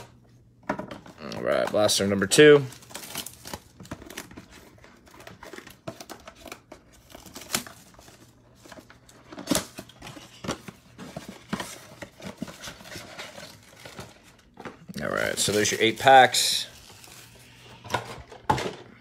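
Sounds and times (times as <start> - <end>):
plastic shrink-wrap crinkling: 1.4 - 10.4, 11.0 - 17.7.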